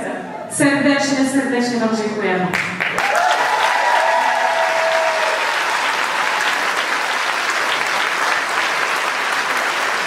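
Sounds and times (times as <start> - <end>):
audience applauding: 2.6 - 10.0.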